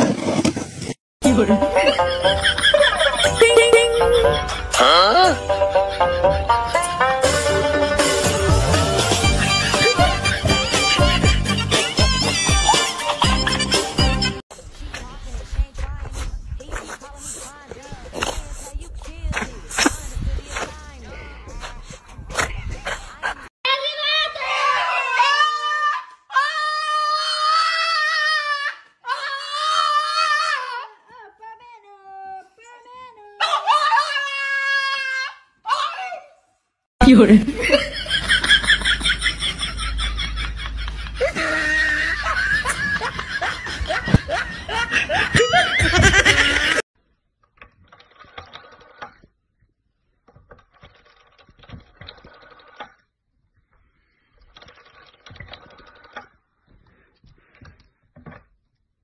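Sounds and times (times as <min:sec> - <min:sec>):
loud laughter: 0:01.7 - 0:06.8, 0:37.4 - 0:46.8.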